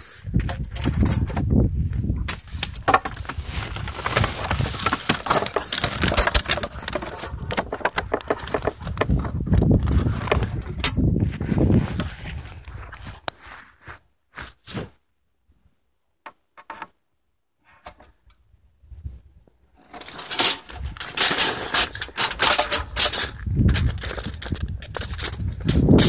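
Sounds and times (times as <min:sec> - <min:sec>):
rustling and knocking handling noise: 0:00.4 - 0:14.5, 0:16.2 - 0:17.0.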